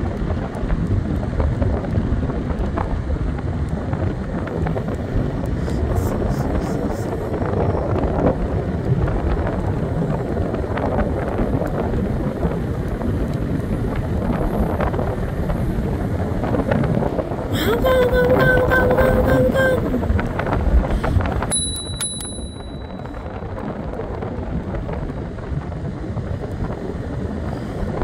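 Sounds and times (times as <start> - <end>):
scooter ride rumble: 0.0 - 28.0
wind buffeting microphone: 0.0 - 28.0.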